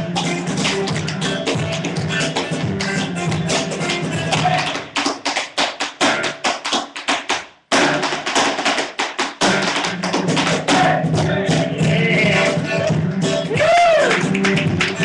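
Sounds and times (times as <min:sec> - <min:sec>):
acoustic guitar: 0:00.0 - 0:05.1, 0:07.7 - 0:15.0
sharp percussive taps: 0:00.2 - 0:11.6.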